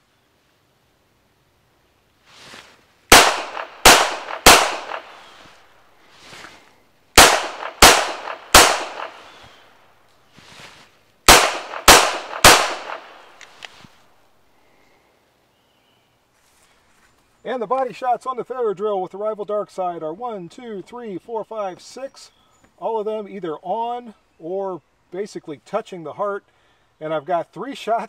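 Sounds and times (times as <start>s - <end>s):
pistol shots: 3.1s - 5.5s, 7.2s - 9.6s, 11.3s - 13.5s.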